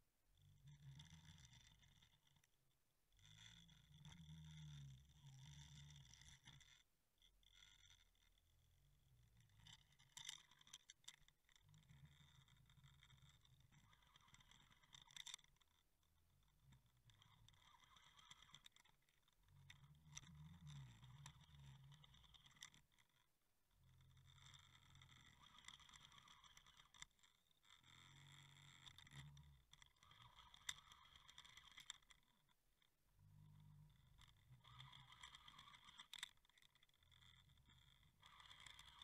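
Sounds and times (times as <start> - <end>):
faint clicks: 24.2 - 39.0.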